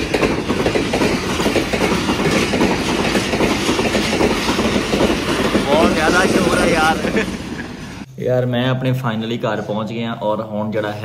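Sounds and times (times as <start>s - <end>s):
train wheels rumbling and clattering: 0.0s - 8.1s.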